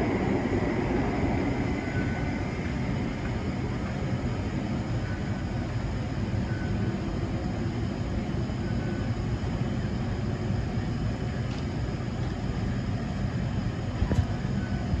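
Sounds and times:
tunnel rumble and hum: 0.0 - 4.8.

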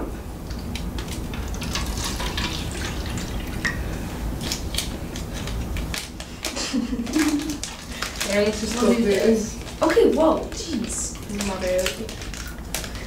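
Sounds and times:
drink pouring with splashes: 1.3 - 3.9.

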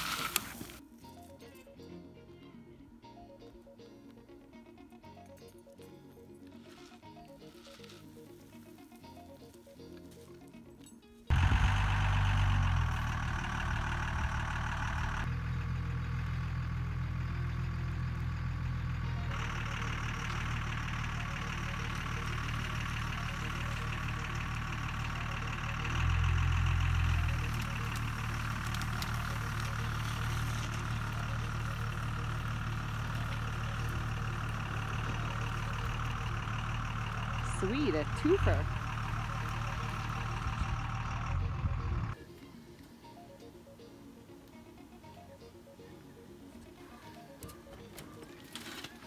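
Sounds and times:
pickup truck engine running: 11.3 - 42.2.

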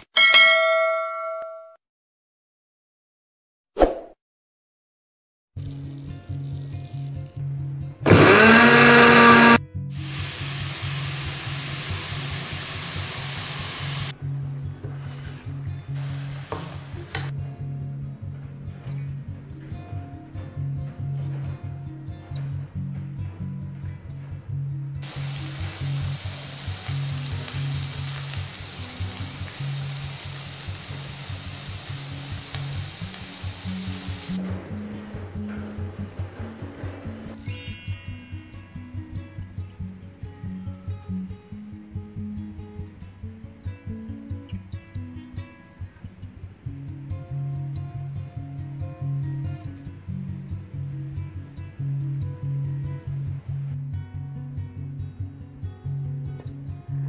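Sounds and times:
background music: 5.6 - 57.0
electric blender grinding: 8.1 - 14.1, 25.0 - 34.4
oil sizzling in a pan: 9.1 - 14.2, 15.0 - 17.3, 25.0 - 34.4.

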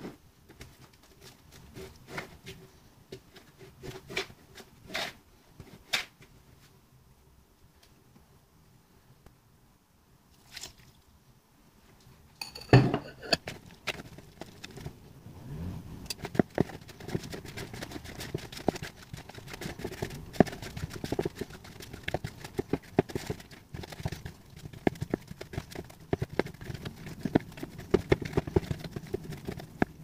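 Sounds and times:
fork scraping against bowl: 12.4 - 13.4.

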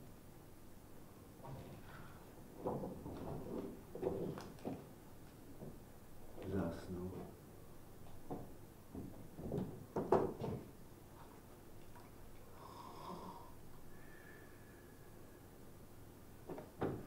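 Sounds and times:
thin whistle on out-breath: 12.6 - 15.5.

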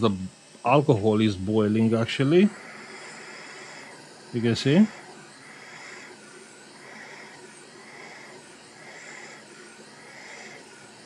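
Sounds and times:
hot air nozzle hissing: 0.0 - 11.0.

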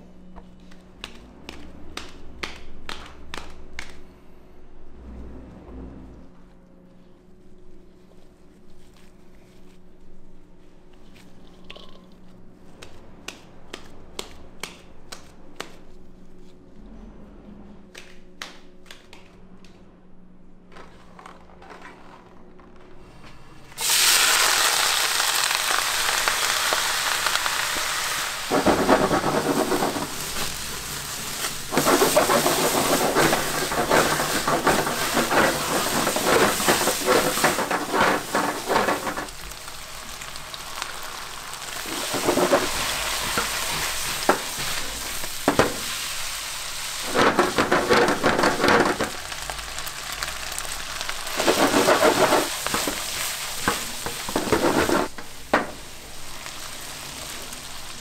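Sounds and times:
food sizzling in a pan: 23.8 - 58.0.

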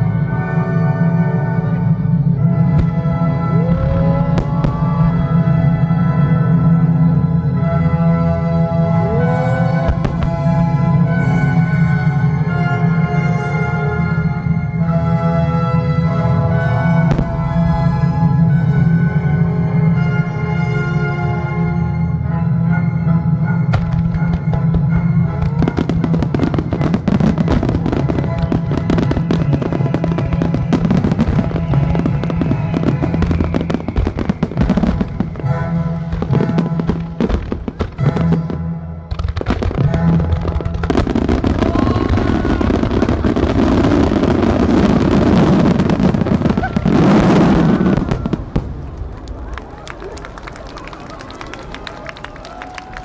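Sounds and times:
orchestral music: 0.0 - 53.0
fireworks crackling: 1.7 - 7.8, 9.1 - 15.0, 23.5 - 53.0
fireworks bursting: 2.2 - 7.6, 9.5 - 14.2, 23.5 - 49.6.

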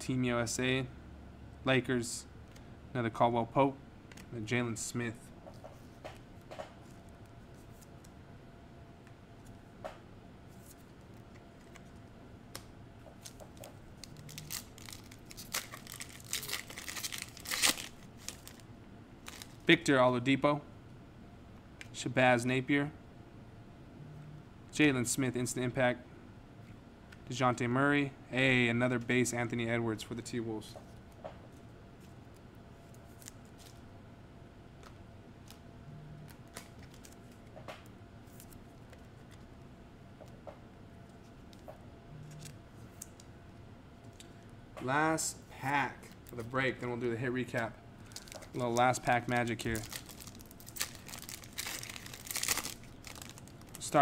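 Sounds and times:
trading cards clicking and rustling: 12.6 - 18.6, 47.5 - 54.0
foil wrapper tearing and crinkling: 14.0 - 18.6, 48.1 - 54.0.

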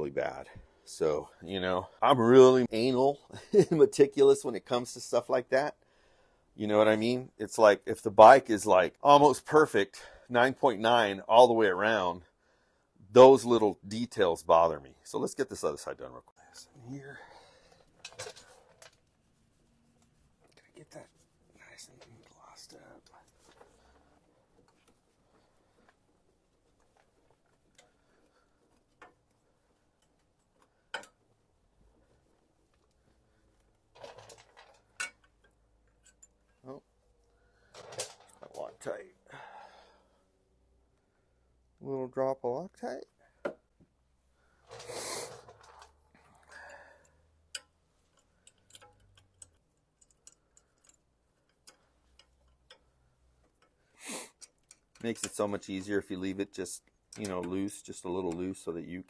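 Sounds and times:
cloth wiping on metal: 17.9 - 33.4
light clicks and taps on metal: 26.7 - 31.3, 46.7 - 56.2, 56.8 - 58.7
metallic clicks of bolts: 47.0 - 53.8, 54.4 - 55.6.

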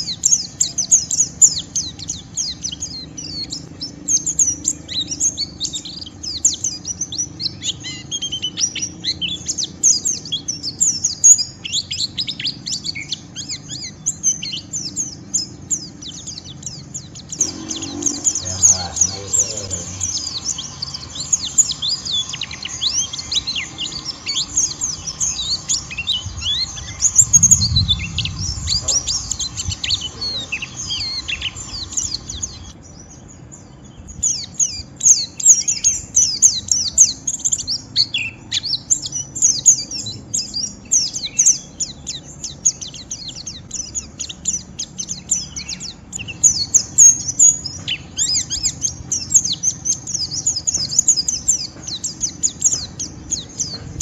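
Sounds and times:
bird twittering: 0.0 - 54.0.

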